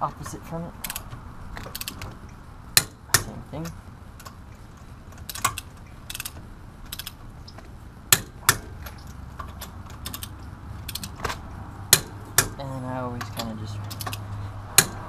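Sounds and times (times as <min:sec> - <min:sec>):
torque wrench ratcheting: 0:05.2 - 0:07.2.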